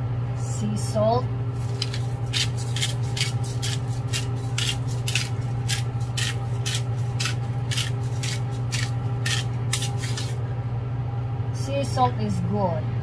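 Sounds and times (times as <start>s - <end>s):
steady low hum: 0.0s - 13.0s
salt grinder crunching: 1.6s - 10.4s.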